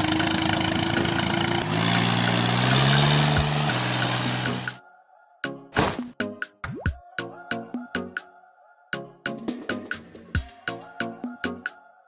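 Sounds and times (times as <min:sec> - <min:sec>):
background music with sharp percussion: 0:09.2 - 0:11.8.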